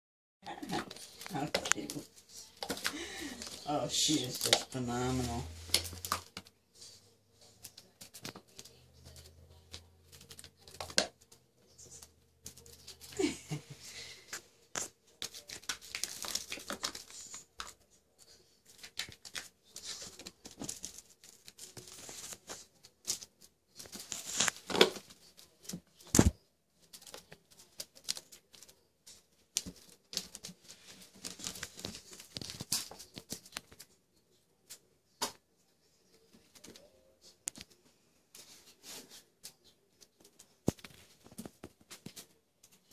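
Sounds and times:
claws scratching and scrabbling: 0:00.5 - 0:34.0.

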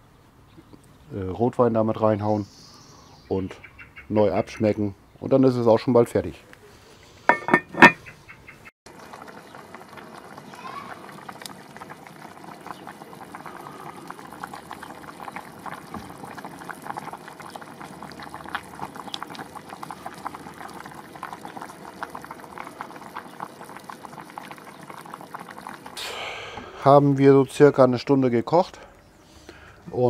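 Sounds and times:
stew bubbling in a pot: 0:08.9 - 0:27.3.

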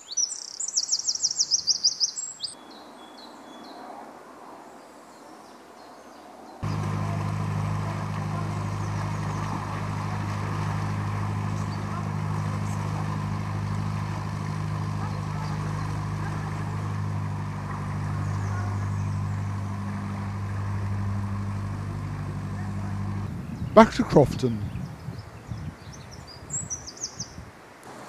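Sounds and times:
boat diesel engine running: 0:06.6 - 0:24.8.

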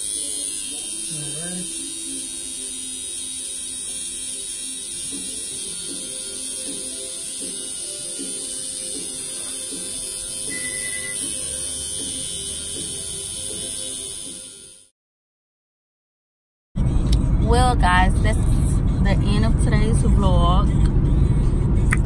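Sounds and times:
music: 0:00.0 - 0:14.9, 0:16.8 - 0:22.0
tattoo machine buzzing: 0:00.0 - 0:14.9.

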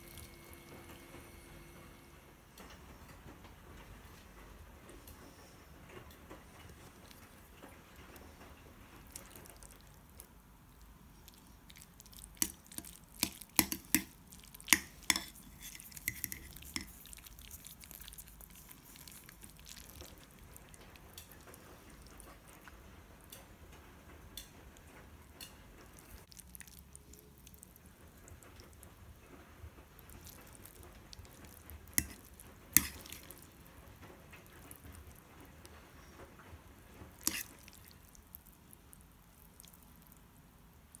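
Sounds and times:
metal fork clinking on ceramic bowl: 0:14.7 - 0:16.9.

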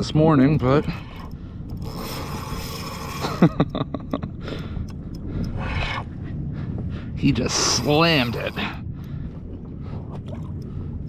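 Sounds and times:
fishing reel clicking: 0:00.0 - 0:06.0, 0:07.5 - 0:08.9
fishing reel hissing: 0:00.8 - 0:03.5, 0:07.5 - 0:08.8.

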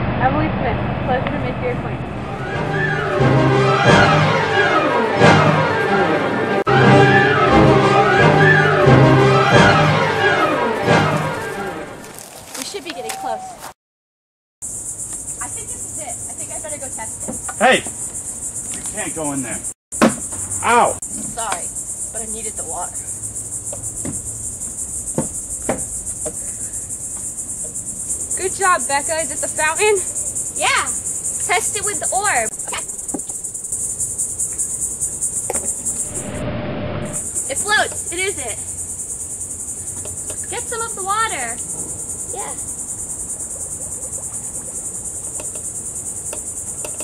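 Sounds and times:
wavering call: 0:02.3 - 0:05.0, 0:06.6 - 0:12.0
insect chorus buzzing: 0:14.6 - 0:47.0.

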